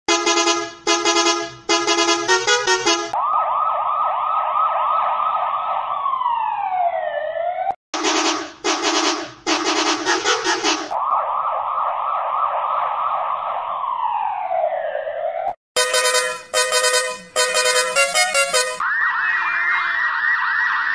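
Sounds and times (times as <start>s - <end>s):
bus horn blasts and toots: 0.1s - 3.2s, 8.0s - 11.0s, 15.8s - 18.8s
police siren warbling: 2.3s - 7.8s, 9.9s - 20.9s.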